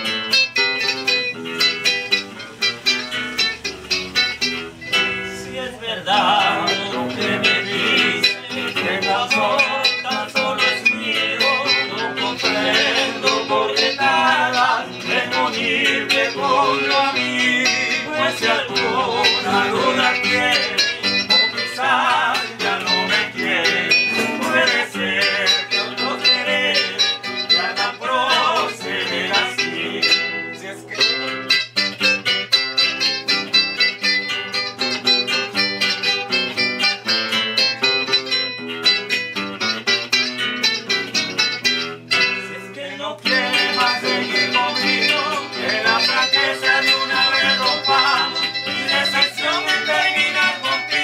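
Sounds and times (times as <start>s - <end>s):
acoustic guitars strumming: 0.0s - 51.0s
man singing: 4.9s - 31.4s, 42.1s - 51.0s.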